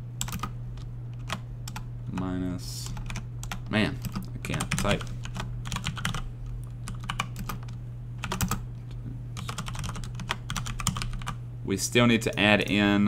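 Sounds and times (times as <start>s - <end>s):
steady low hum: 0.0s - 13.0s
typing on computer keyboard: 0.2s - 0.5s, 2.9s - 8.6s, 9.4s - 11.4s.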